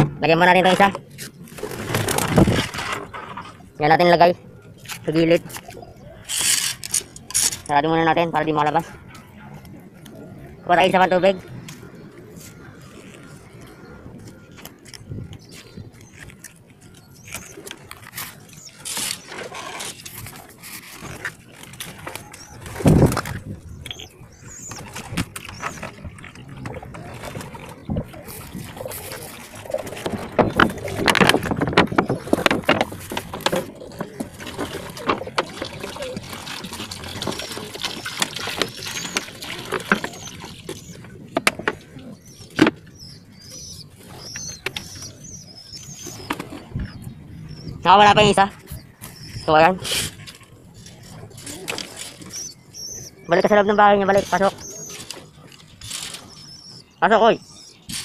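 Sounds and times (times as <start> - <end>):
pigeons cooing: 7.9 - 58.0
knocks and scrapes of handling: 24.7 - 42.8.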